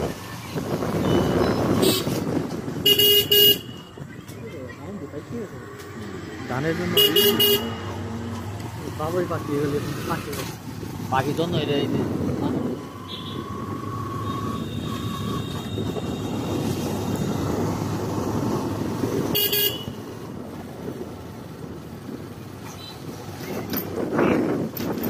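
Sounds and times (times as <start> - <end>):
vehicle engine and road noise: 0.0 - 25.0
car horn toot: 1.0 - 2.2, 2.8 - 4.0, 7.0 - 8.0, 19.3 - 20.0.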